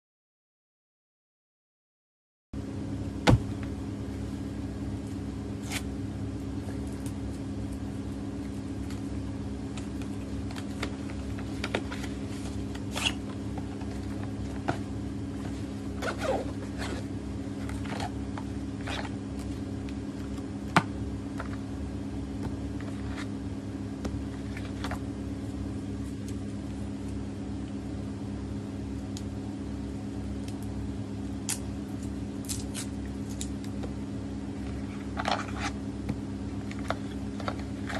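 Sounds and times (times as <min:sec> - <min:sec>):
steady low hum: 0:02.6 - 0:37.9
zip opening: 0:12.9 - 0:13.2, 0:16.0 - 0:17.1.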